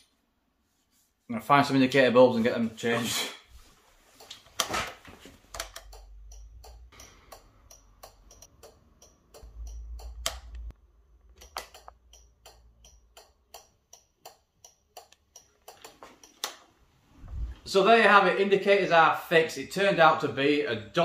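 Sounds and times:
indicator relay clicking: 5.5s - 16.6s
brief low rumble: 17.2s - 17.6s.

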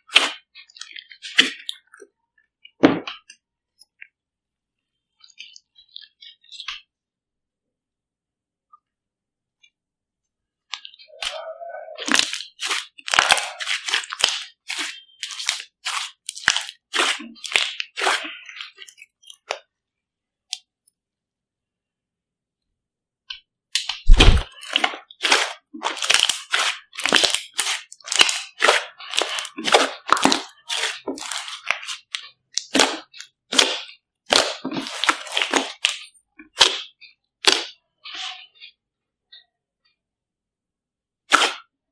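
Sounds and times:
slime popping and crackling: 0.0s - 1.9s, 12.0s - 19.6s, 23.8s - 38.4s, 41.3s - 41.6s.

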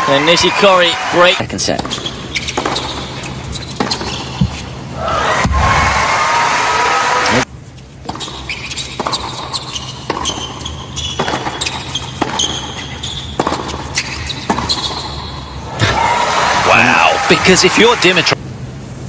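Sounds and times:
tennis ball bouncing: 1.7s - 4.8s, 8.0s - 15.9s
tennis ball struck by racquet: 1.8s - 4.7s, 9.0s - 10.5s, 11.2s - 12.7s, 13.3s - 15.2s
shoes squeaking on court: 1.8s - 4.8s, 7.7s - 15.6s
crowd applause: 15.9s - 18.4s.

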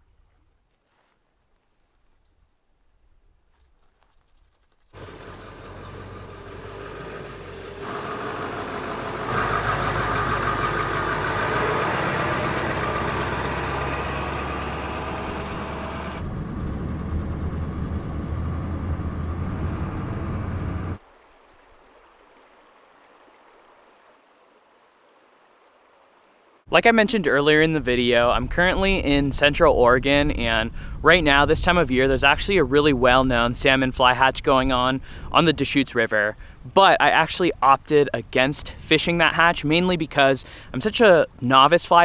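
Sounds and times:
diesel truck driving by: 5.0s - 21.0s
river water rushing: 21.0s - 26.7s.

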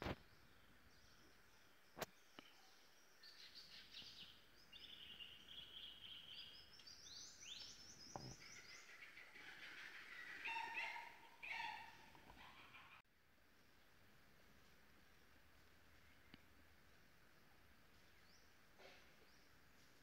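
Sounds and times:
birds chirping and trilling: 0.2s - 13.0s.

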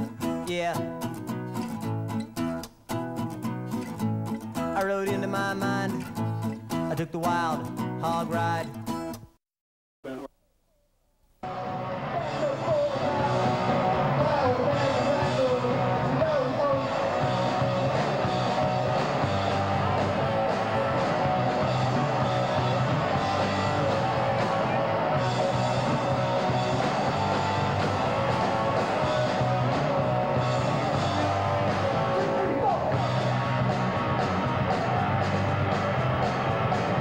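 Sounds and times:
punk rock with electric guitars: 11.4s - 37.0s.

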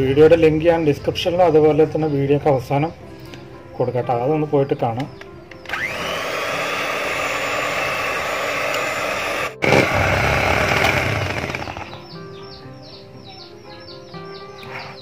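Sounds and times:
soft music: 0.0s - 15.0s
electric hand mixer whirring: 5.7s - 12.0s.

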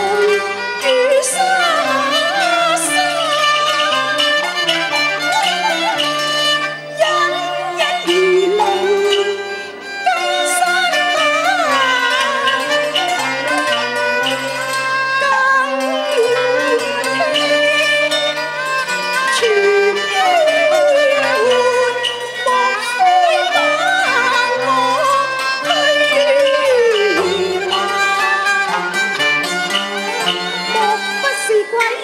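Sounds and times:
opera music with bowed strings: 0.0s - 32.0s.

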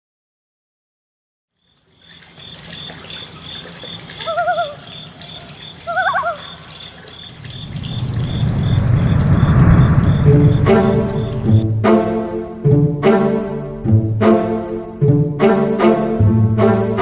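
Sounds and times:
warbling bird-like calls: 2.4s - 11.6s
low rumble: 7.4s - 11.9s.

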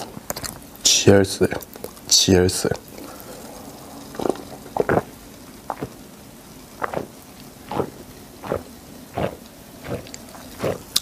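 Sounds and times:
soda fizzing hiss: 0.7s - 11.0s
person gulping swallows: 2.8s - 6.0s, 6.8s - 11.0s.

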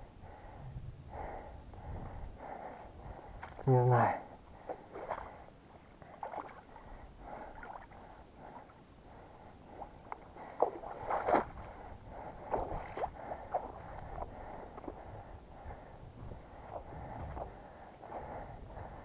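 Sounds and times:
footsteps sloshing through water: 3.2s - 3.8s, 4.4s - 9.0s, 9.7s - 18.8s.

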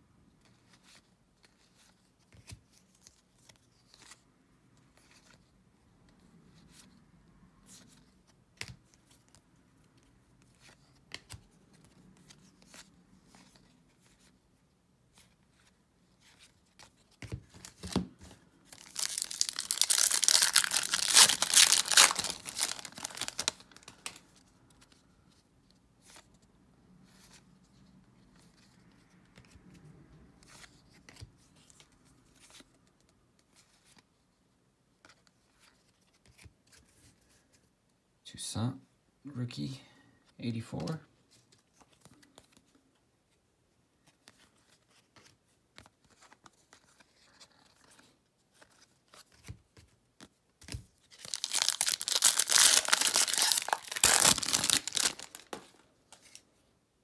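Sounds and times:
cards rustling: 15.1s - 25.1s, 44.0s - 56.6s
foil wrapper tearing and crinkling: 18.7s - 23.8s, 51.2s - 55.6s.

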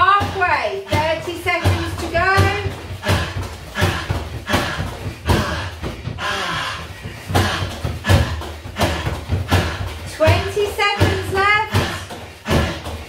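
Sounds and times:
kicks thudding into punch bag: 7.3s - 13.0s.

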